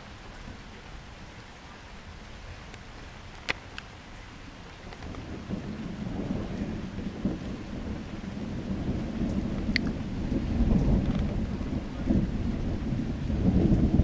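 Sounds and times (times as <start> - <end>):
thunder rolling: 5.0 - 14.0.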